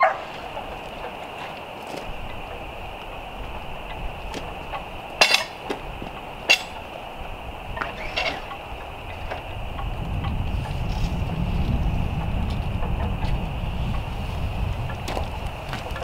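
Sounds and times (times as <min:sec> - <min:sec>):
wooden battens clattering on metal stand: 0:04.3 - 0:06.9.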